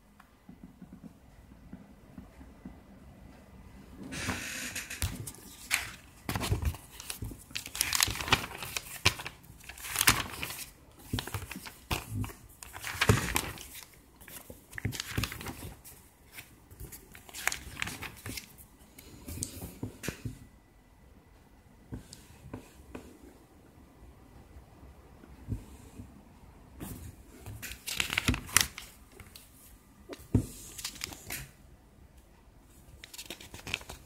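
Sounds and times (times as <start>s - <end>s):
paper pages rustling: 4.8s - 18.7s, 26.8s - 31.6s, 33.0s - 34.0s.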